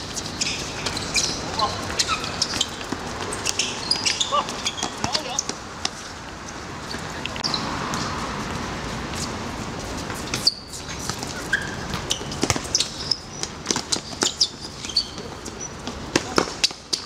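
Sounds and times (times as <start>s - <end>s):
shoes squeaking on court: 0.0s - 17.0s
ball kicks: 0.8s - 5.6s.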